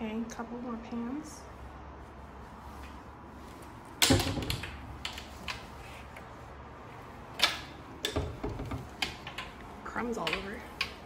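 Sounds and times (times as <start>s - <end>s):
door hinge clicks: 7.4s - 9.7s.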